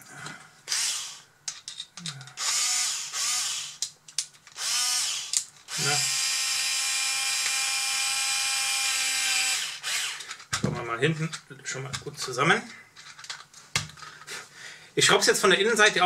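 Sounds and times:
cordless screwdriver whine: 0:00.7 - 0:01.2, 0:02.4 - 0:03.8, 0:04.6 - 0:10.3.

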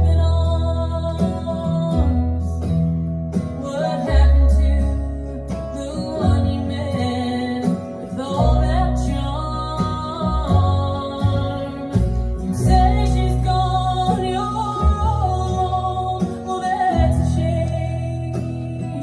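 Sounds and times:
recorded music from speakers: 0:00.0 - 0:19.0.

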